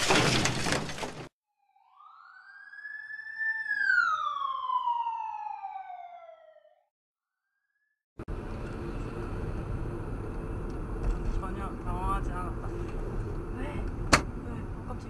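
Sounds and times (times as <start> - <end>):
loud crashing and shattering: 0.0 - 1.3
siren wail: 1.6 - 6.9.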